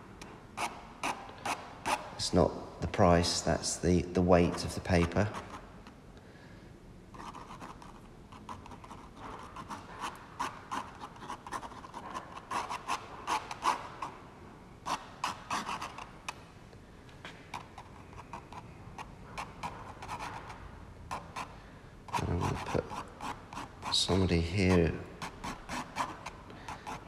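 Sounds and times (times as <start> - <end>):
pen scratching on rough paper: 7.2 - 14.1, 22.1 - 24.0, 25.2 - 27.0.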